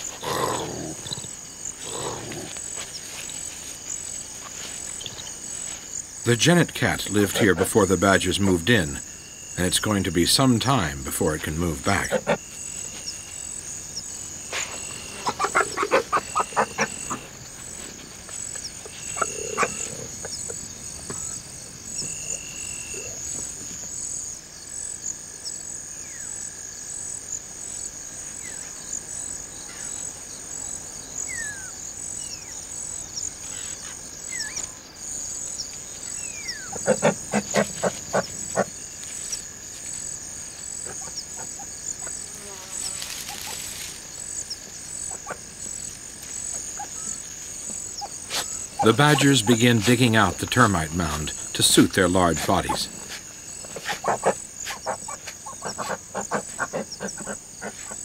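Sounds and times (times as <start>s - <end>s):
insect chorus trilling: 0.0s - 58.0s
animal rattling call: 14.5s - 17.4s.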